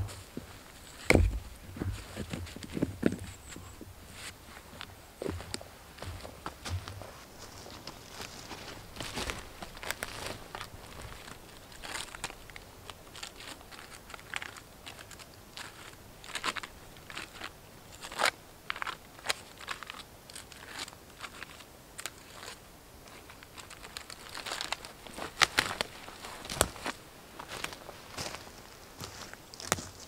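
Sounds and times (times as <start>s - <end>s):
dry bark tearing: 9.7s - 26.9s.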